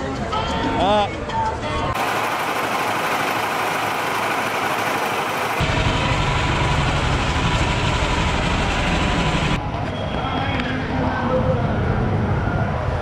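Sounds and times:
street traffic engines: 2.0s - 13.0s
heavy low rumble: 3.0s - 9.6s.

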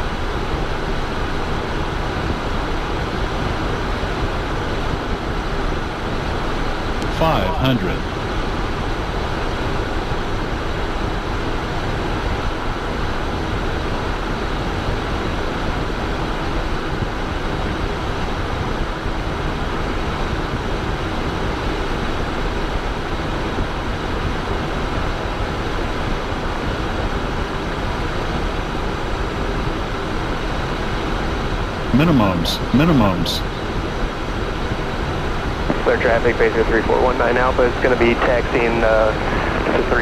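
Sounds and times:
jet engines humming: 0.0s - 17.4s, 20.6s - 40.0s
rush of airflow: 38.2s - 40.0s.

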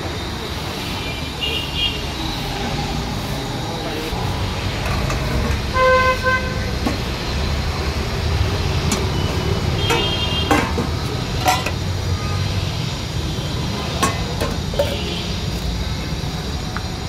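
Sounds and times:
street traffic rumble: 0.0s - 17.0s
vehicle horn tooting: 5.7s - 6.8s, 8.8s - 10.8s
spoon clinking on steel pots: 8.8s - 9.2s, 9.8s - 11.9s, 13.9s - 15.1s.

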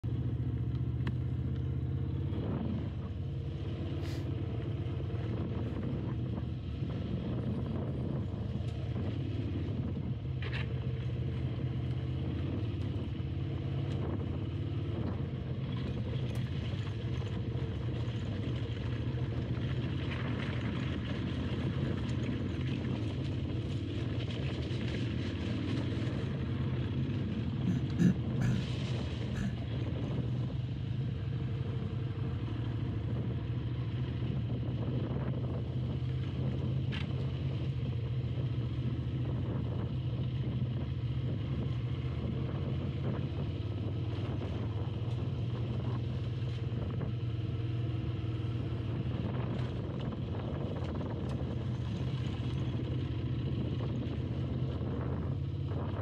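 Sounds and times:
motorcycle engine running: 0.0s - 56.0s
knocks and clatter over rocks: 10.4s - 12.0s, 14.9s - 30.4s, 36.0s - 37.5s, 49.1s - 54.8s.

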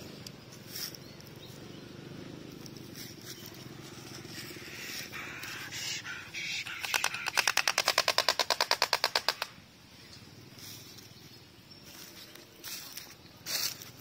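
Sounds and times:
stork bill clattering: 2.6s - 9.6s.

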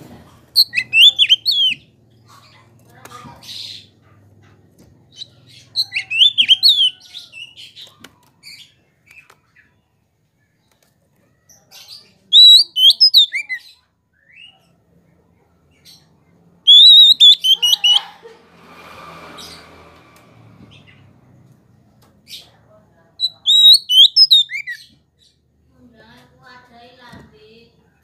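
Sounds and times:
bird singing whistled phrases: 0.6s - 1.8s, 5.8s - 7.0s, 12.3s - 13.6s, 16.7s - 18.0s, 23.2s - 24.8s.

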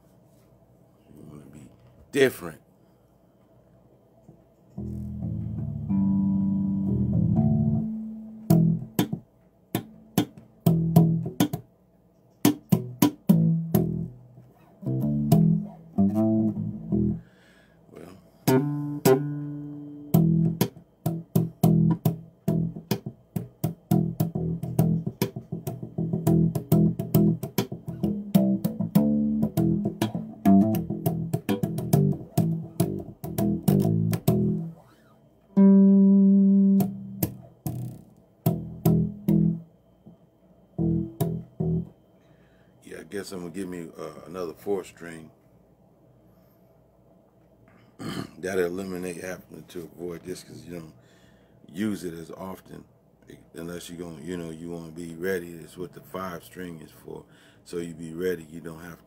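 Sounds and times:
electric bass guitar plucked: 4.8s - 11.6s, 12.4s - 17.3s, 18.4s - 34.9s, 35.6s - 40.2s, 40.8s - 42.0s.

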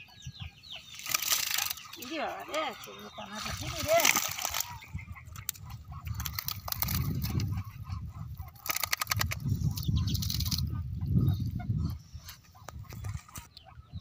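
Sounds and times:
fish flapping in a bucket: 0.9s - 7.6s, 8.4s - 10.7s.

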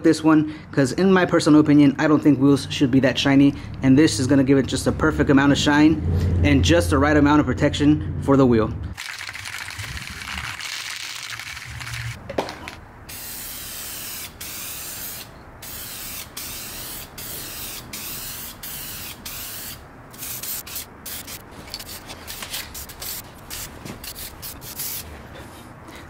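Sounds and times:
aerosol can spraying: 13.1s - 22.0s, 22.7s - 25.0s.

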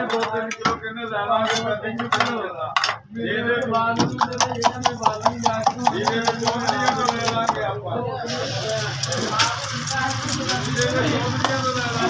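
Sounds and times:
utensil beating eggs in steel bowl: 4.0s - 7.6s, 8.3s - 12.0s.

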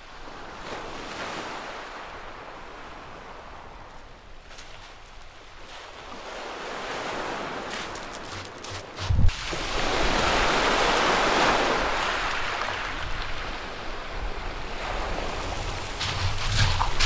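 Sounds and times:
waves washing over shingle: 5.7s - 17.0s.

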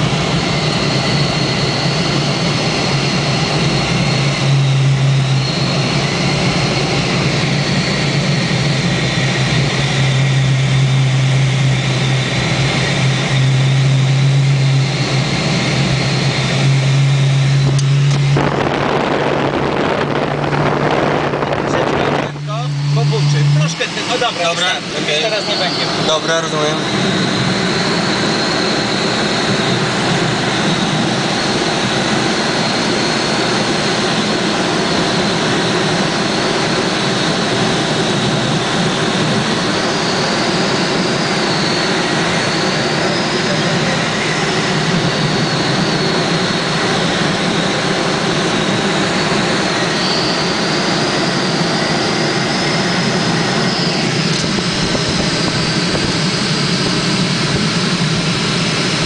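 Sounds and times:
wind rushing past canopy: 17.6s - 23.0s.

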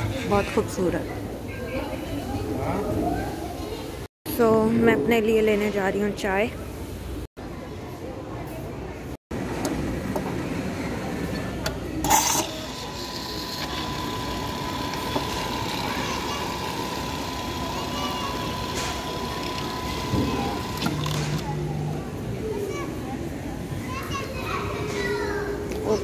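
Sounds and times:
coffee machine hiss: 12.0s - 21.2s
coffee machine whine: 12.0s - 21.8s.

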